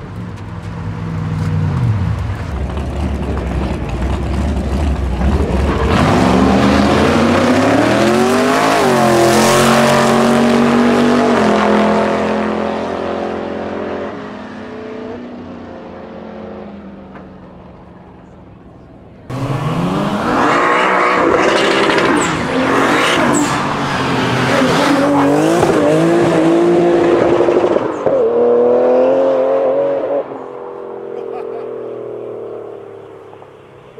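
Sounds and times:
deep low-revving engine rumble: 0.0s - 8.3s
race car engines at full throttle: 0.0s - 33.9s.

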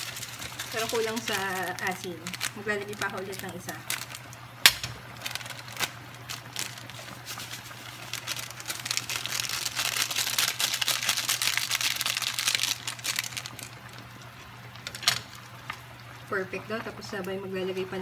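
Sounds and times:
foil sachet crinkling: 0.0s - 15.5s.

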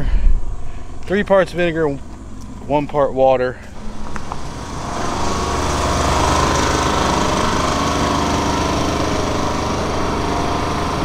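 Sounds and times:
machine motor droning: 0.5s - 11.0s.

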